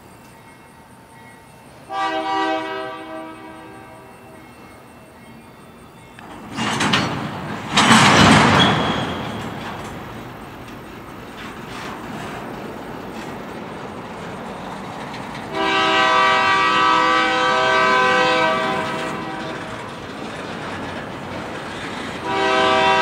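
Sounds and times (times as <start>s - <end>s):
train wheels on rails: 0.0s - 23.0s
locomotive air horn chord: 1.9s - 4.9s, 15.5s - 19.9s, 22.2s - 23.0s.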